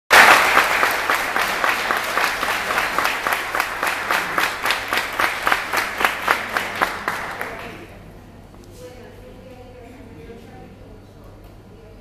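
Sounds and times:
small audience applauding: 0.1s - 7.9s.

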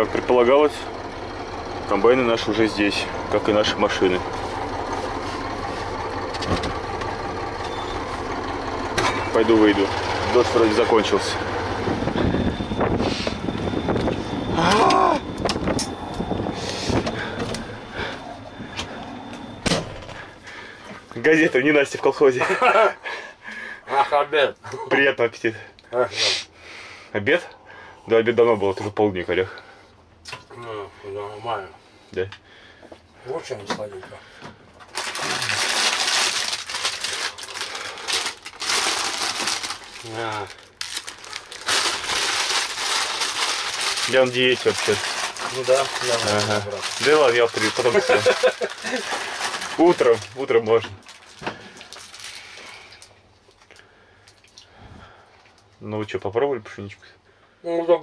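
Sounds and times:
truck engine idling: 0.0s - 24.4s, 27.5s - 54.3s
truck cab door clunking: 16.9s - 20.3s
food packaging crinkling: 34.9s - 53.1s.

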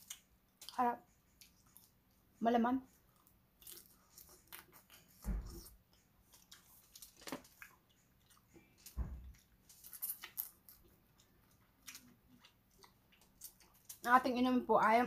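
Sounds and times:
person chewing crab: 3.2s - 14.0s.

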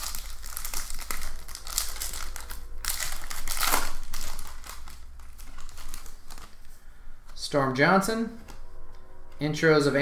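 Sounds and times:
foil wrapper crinkling: 0.0s - 6.6s.

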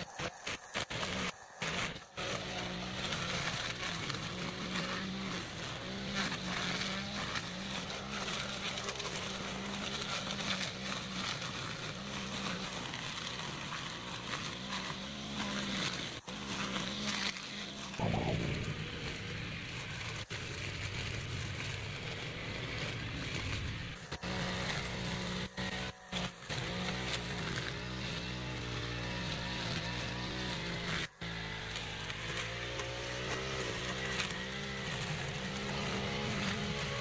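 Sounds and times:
brush cutter engine running: 0.0s - 37.0s.

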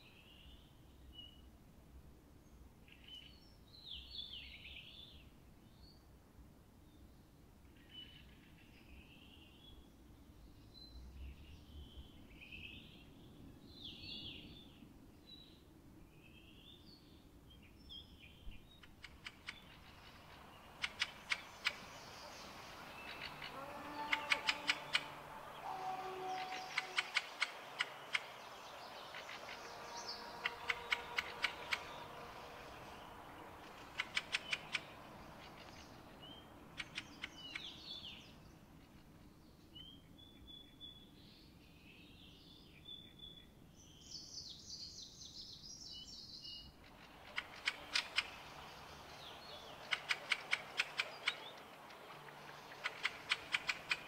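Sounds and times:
birds singing clicking notes: 17.9s - 40.8s, 46.8s - 54.0s.

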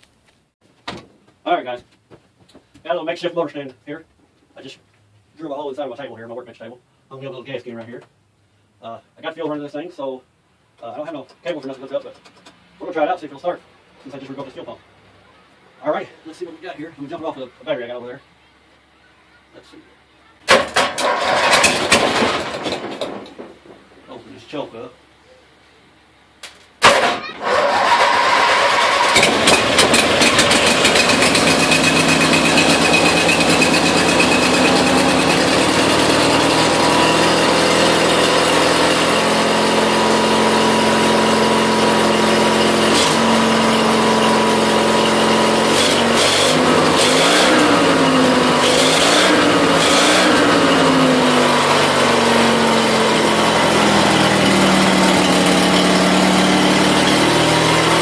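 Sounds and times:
twin engine starting and running: 20.4s - 24.6s, 26.8s - 58.0s.

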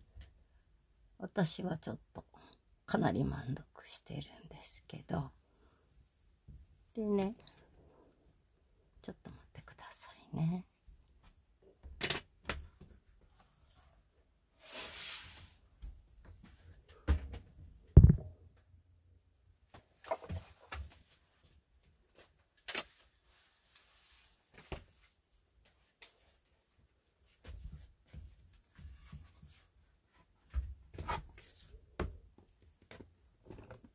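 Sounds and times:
dull thumps: 18.0s - 18.4s.

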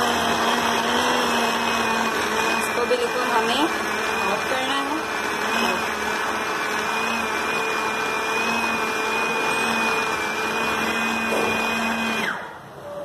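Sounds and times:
food chopper grinding: 0.0s - 12.4s.

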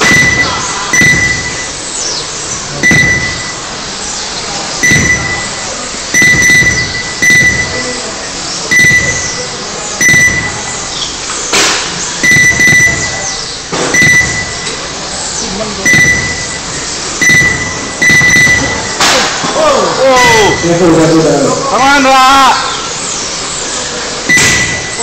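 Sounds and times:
sharp knock: 0.0s - 1.6s, 2.8s - 3.5s, 24.3s - 24.9s
timing system beeps: 0.0s - 1.8s, 2.7s - 3.7s, 4.8s - 11.0s, 12.2s - 15.0s, 15.8s - 19.1s, 20.2s - 21.3s, 24.2s - 25.0s.

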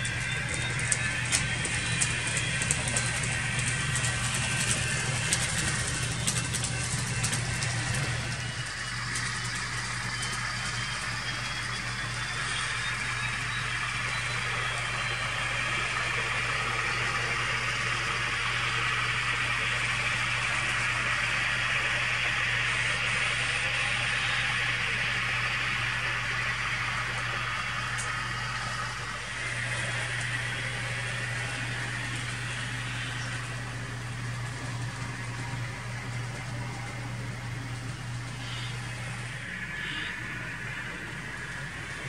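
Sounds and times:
rapid clicking: 0.0s - 13.1s
low hum: 0.0s - 42.0s
model train motors whirring: 0.0s - 42.0s.

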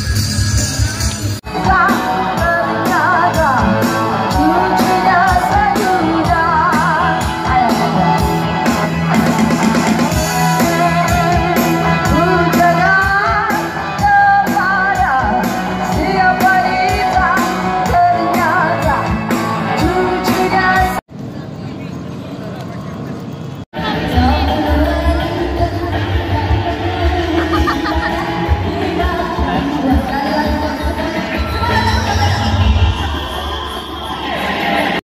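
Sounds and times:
drum kit beat: 0.0s - 21.0s
person singing: 0.6s - 21.0s, 23.8s - 35.0s.

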